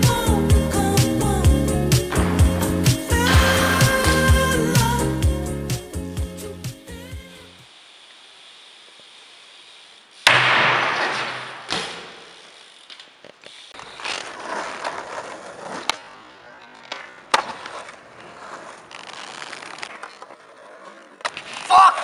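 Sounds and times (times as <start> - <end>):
skateboard rolling on rough pavement: 1.8 - 6.2, 11.0 - 22.0
bike hitting concrete floor: 2.0 - 5.3, 9.9 - 14.3, 21.2 - 21.9
skateboard clacking: 2.1 - 4.9, 14.3 - 18.9.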